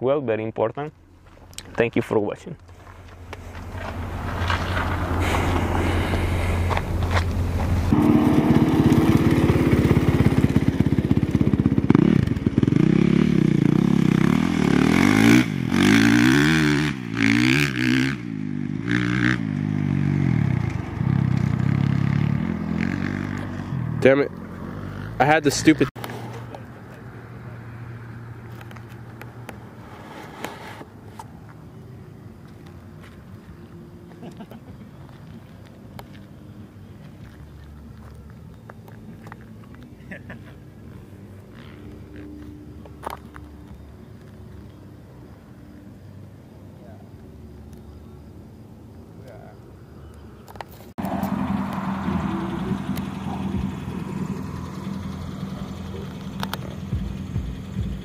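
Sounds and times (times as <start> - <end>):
road noise: 0.0 - 58.0
vehicle engine humming: 0.0 - 58.0.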